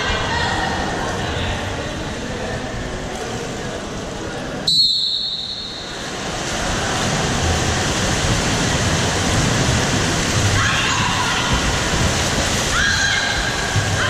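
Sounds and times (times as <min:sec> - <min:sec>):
indoor pool hall noise: 0:00.0 - 0:14.0
referee's whistle blast: 0:04.7 - 0:05.9.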